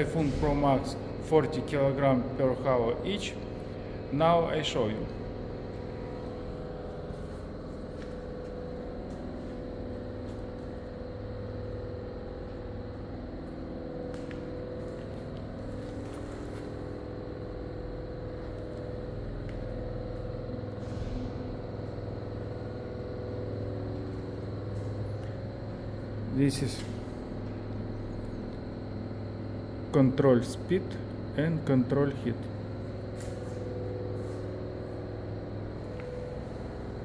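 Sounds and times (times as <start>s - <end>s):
low mechanical hum: 0.0s - 37.0s.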